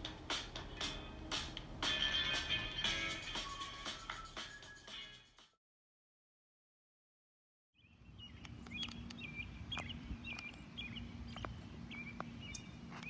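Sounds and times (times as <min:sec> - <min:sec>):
steady hum: 0:00.0 - 0:04.1
bird chirping: 0:07.8 - 0:13.0
sharp clicks: 0:08.4 - 0:09.2.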